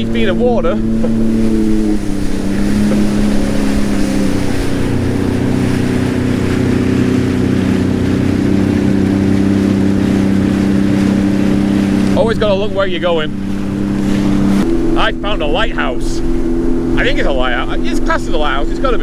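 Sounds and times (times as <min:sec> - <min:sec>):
water rushing and spraying: 0:00.0 - 0:19.0
watercraft engine running: 0:00.0 - 0:19.0.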